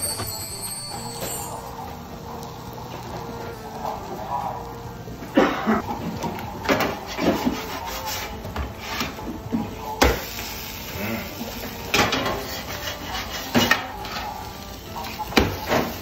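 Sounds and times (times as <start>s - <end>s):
metal spatulas scraping a griddle: 6.7s - 9.2s, 11.9s - 14.4s.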